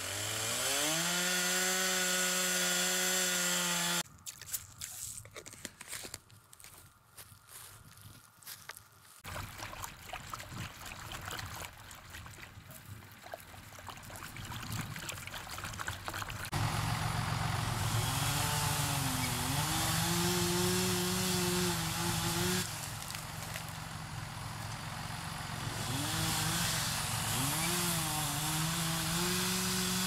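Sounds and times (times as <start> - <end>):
chainsaw engine running: 0.0 - 4.0, 16.5 - 30.0.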